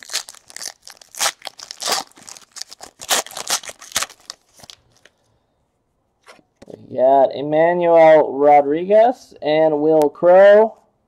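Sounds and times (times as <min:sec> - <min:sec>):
foil wrapper tearing and crinkling: 0:00.0 - 0:05.1.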